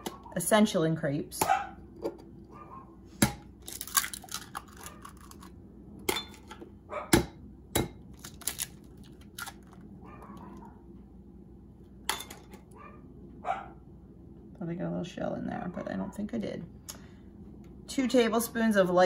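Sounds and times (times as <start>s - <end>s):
eggs cracking on bowl rim: 3.6s - 6.6s.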